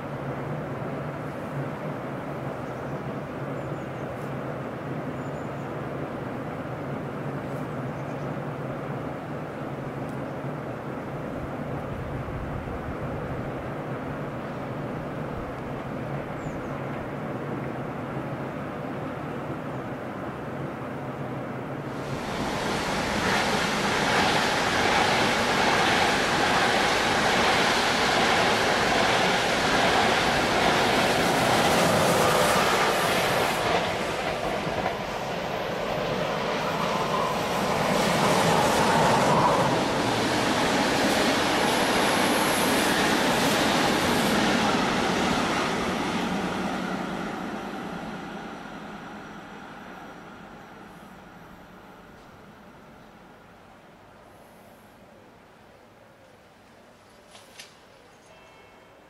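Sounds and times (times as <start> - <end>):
train wheels rumbling on track: 21.6 - 53.4.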